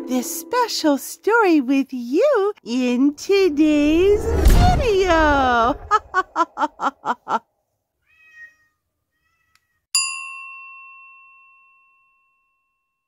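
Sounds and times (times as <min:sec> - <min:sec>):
faint meow: 0:08.0 - 0:09.8
meow-like squeaks: 0:08.0 - 0:09.8
bright bell ding: 0:10.0 - 0:12.6.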